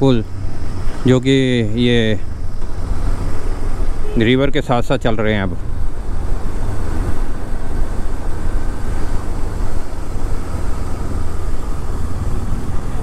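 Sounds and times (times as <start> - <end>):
wind and road noise: 0.0 - 13.0
motorcycle engine running: 5.5 - 13.0.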